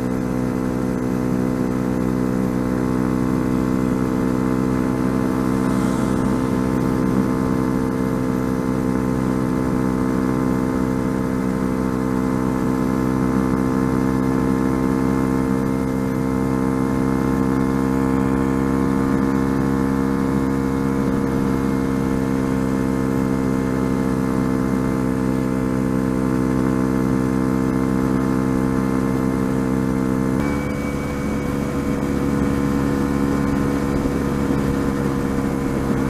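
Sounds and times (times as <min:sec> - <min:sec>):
motorcycle engine running steadily: 0:00.0 - 0:36.0.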